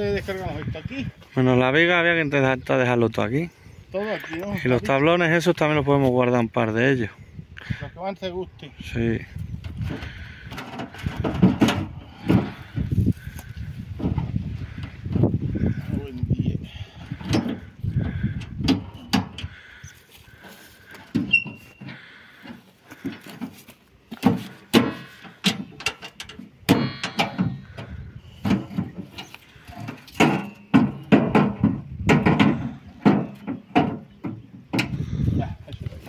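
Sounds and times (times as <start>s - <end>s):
logs knocking on metal: 9.7s - 15.7s, 20.9s - 35.0s
wood scraping on metal: 17.0s - 35.4s.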